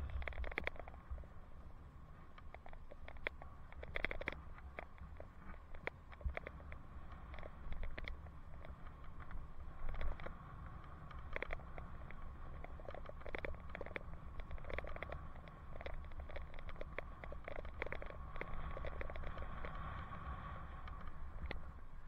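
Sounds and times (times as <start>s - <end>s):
bicycle clicks and rattles: 0.0s - 21.8s
wind rumbling on microphone: 0.0s - 22.0s.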